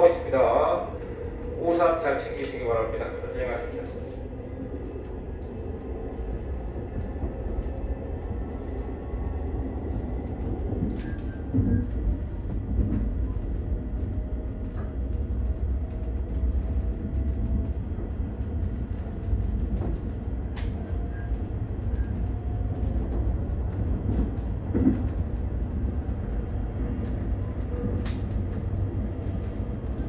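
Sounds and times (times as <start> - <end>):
train wheels rumbling on track: 0.0 - 30.0.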